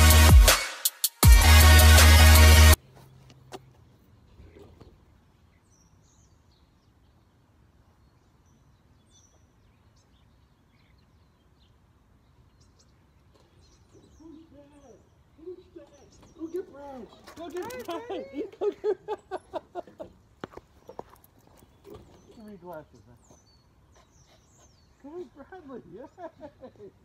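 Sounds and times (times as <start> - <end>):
electronic dance music: 0.0 - 2.8
faint bird chirps: 4.2 - 17.8.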